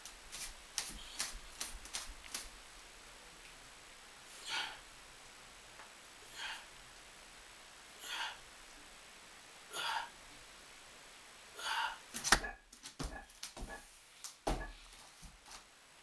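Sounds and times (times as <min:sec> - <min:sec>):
man breathing hard: 0:04.4 - 0:04.8, 0:06.3 - 0:06.8, 0:08.0 - 0:08.5, 0:09.7 - 0:10.2, 0:11.6 - 0:12.1
feet knocking and thumping: 0:12.2 - 0:13.8, 0:14.4 - 0:15.6.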